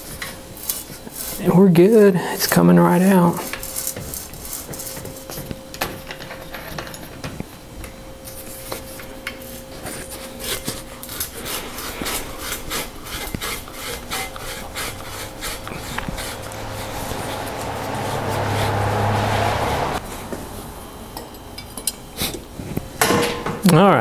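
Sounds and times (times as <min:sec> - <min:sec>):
seat post scraping in bicycle frame: 0:08.4 - 0:20.0.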